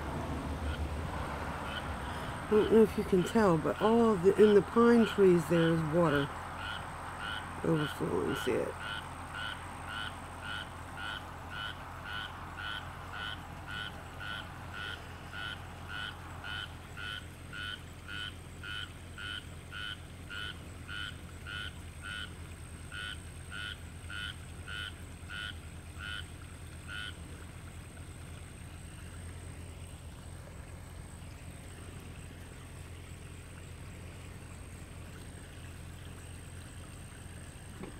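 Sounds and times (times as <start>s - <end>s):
frog croaking: 0.1s - 37.9s
low hum: 9.1s - 37.9s.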